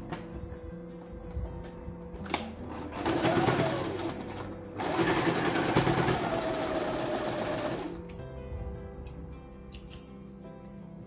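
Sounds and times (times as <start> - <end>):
sewing machine stitching: 2.7 - 8.0.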